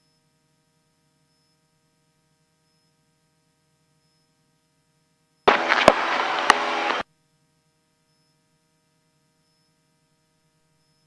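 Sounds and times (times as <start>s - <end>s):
aircraft engine and cabin noise: 5.5s - 7.0s
headset clicks: 5.5s - 7.0s.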